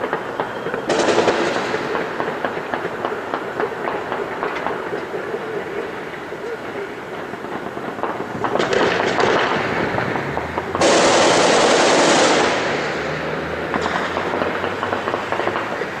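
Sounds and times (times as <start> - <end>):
automatic gunfire: 0.9 - 2.4, 10.8 - 13.2.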